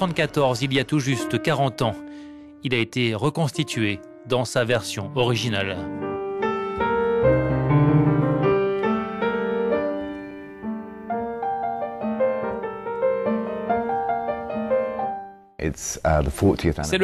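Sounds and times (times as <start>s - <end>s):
classical piano playing: 0.0s - 15.6s.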